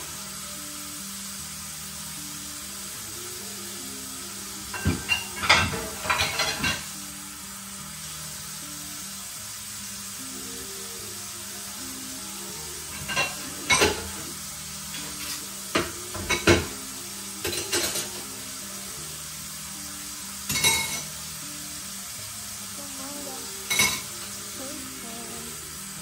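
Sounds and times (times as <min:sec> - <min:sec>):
dishes and cutlery clattering in sink: 0:04.7 - 0:07.0, 0:12.8 - 0:16.8, 0:17.4 - 0:18.4, 0:20.5 - 0:21.2, 0:23.6 - 0:24.3.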